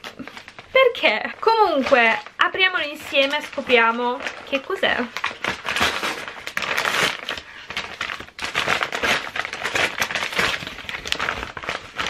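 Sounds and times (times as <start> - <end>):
paper envelope crinkling: 0.0 - 12.0.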